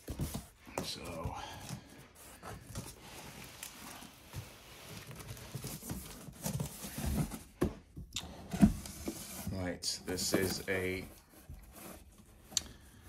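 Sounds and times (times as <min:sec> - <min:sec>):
cardboard box flaps rustling: 0:04.3 - 0:07.8.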